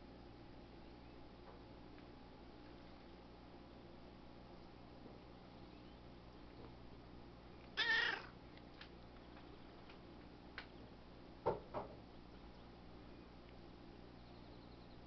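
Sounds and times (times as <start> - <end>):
cat meowing: 7.8 - 8.4.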